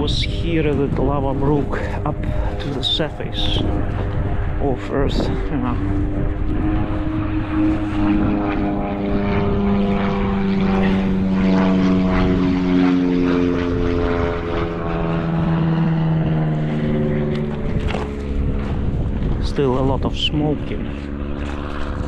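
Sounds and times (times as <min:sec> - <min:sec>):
propeller airplane engine drone: 0:00.0 - 0:22.0.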